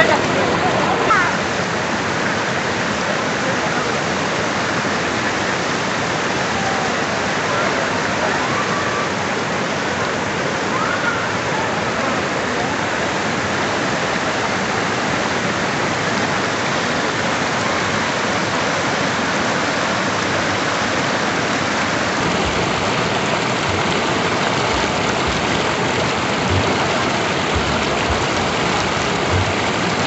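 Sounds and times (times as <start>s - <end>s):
water rushing over weir: 0.0s - 30.0s
low thuds: 22.2s - 30.0s.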